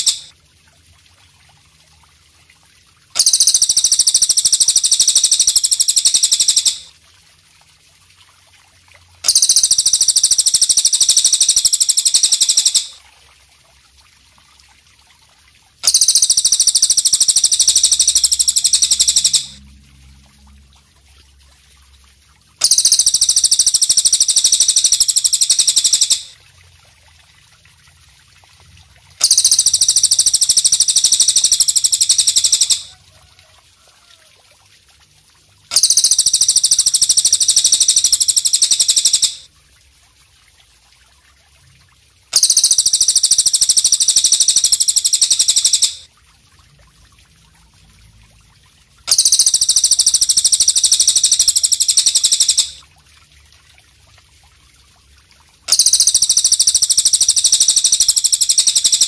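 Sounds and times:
high rapid buzzing bird trill: 0.0s - 0.3s, 3.2s - 6.9s, 9.2s - 13.0s, 15.8s - 19.6s, 22.6s - 26.4s, 29.2s - 32.9s, 35.7s - 39.5s, 42.3s - 46.0s, 49.1s - 52.8s, 55.7s - 59.0s.

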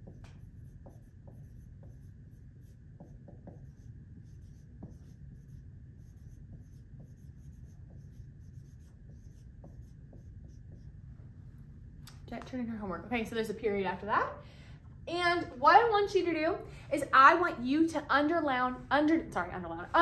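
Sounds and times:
marker writing on whiteboard: 0.0s - 11.1s.

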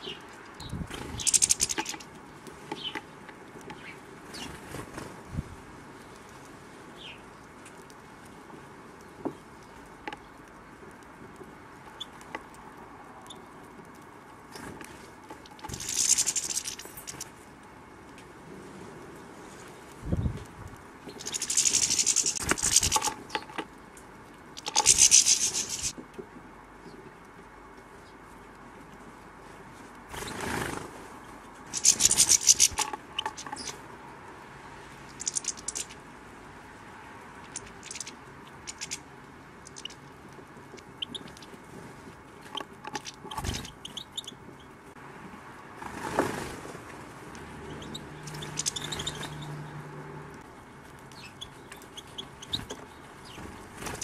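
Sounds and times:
birds clicking at feeder: 0.0s - 5.1s, 9.0s - 17.6s, 20.6s - 26.0s, 31.6s - 33.9s, 35.0s - 36.0s, 37.3s - 41.6s, 42.4s - 44.7s, 47.6s - 49.8s
bird wings fluttering: 0.8s - 2.1s, 15.5s - 17.3s, 21.1s - 23.5s, 24.6s - 26.0s, 30.1s - 33.8s, 35.2s - 36.0s, 37.4s - 39.0s, 39.6s - 40.0s, 52.5s - 54.0s.

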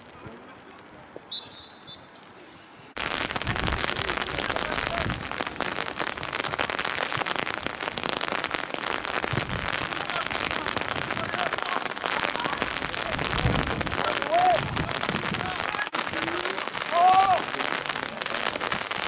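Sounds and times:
rain falling: 0.0s - 19.0s
high whistle tone: 1.3s - 2.1s.

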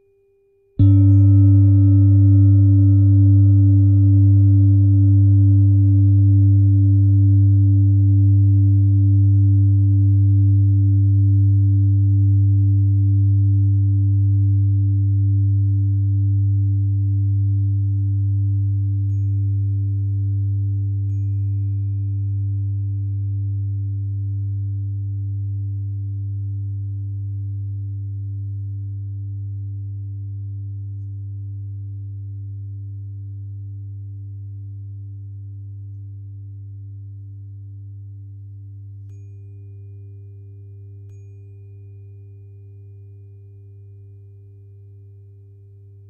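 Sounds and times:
tuning fork tone: 0.0s - 46.0s
singing bowl ringing: 0.8s - 14.9s, 16.2s - 24.4s, 39.0s - 45.8s.

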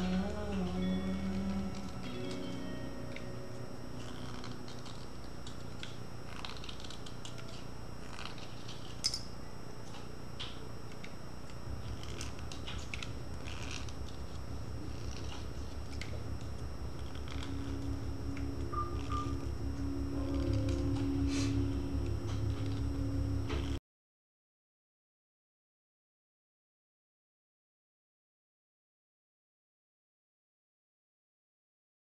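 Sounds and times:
blade scraping pencil: 4.0s - 9.1s, 11.8s - 16.1s
fast-pulsing low rumble: 15.6s - 23.8s.

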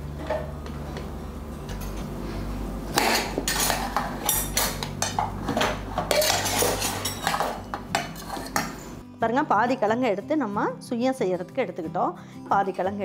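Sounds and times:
steel kitchenware clinking: 3.0s - 8.9s.

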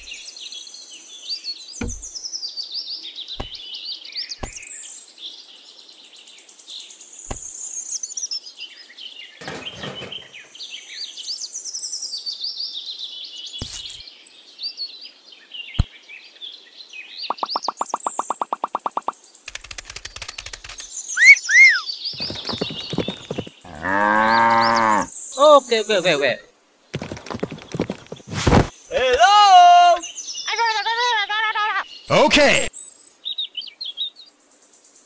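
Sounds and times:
small birds chirping: 0.0s - 35.0s
light knocks of clay pieces: 3.4s - 3.6s, 4.4s - 4.6s.

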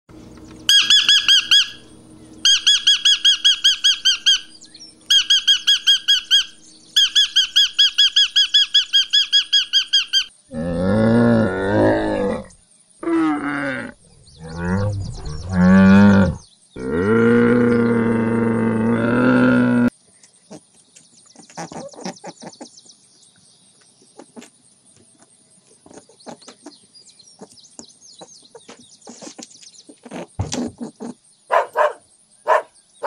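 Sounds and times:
parrot squawking: 0.7s - 1.8s, 2.4s - 10.3s, 31.5s - 32.7s
camel calling: 10.2s - 19.9s, 30.1s - 32.7s.

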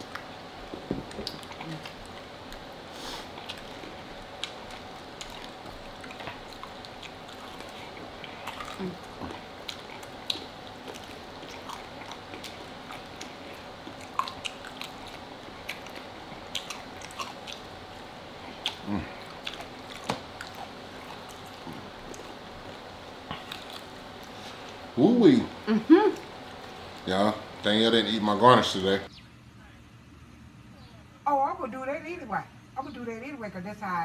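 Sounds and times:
chewing and biting food: 0.0s - 24.9s
low mouth sounds: 3.0s - 17.7s, 18.4s - 22.4s.

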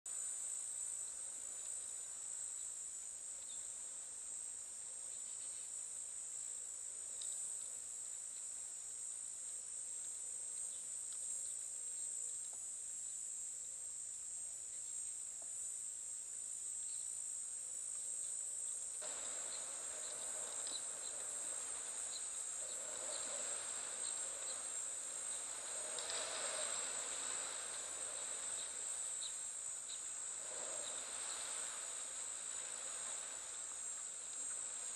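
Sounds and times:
hiss-like background: 0.1s - 34.9s
insects shrilling: 19.0s - 34.9s.

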